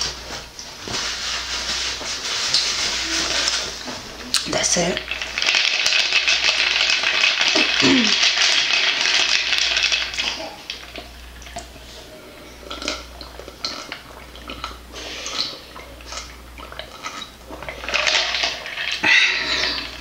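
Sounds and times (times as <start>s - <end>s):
person swallowing: 7.6s - 8.3s.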